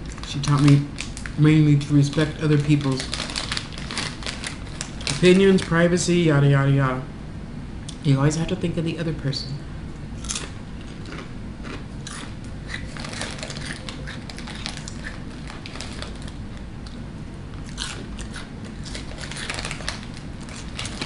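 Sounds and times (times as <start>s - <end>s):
foil bag rustling: 0.1s - 6.1s, 12.8s - 16.4s, 18.7s - 21.0s
chips being chewed: 2.0s - 5.7s, 10.2s - 17.0s, 17.6s - 21.0s.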